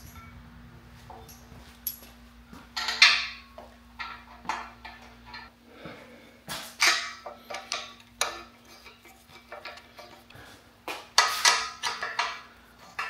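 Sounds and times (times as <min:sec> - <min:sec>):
allen key clinking on bolts: 0:00.0 - 0:00.4, 0:01.2 - 0:02.2
faint steady hum: 0:00.0 - 0:13.0.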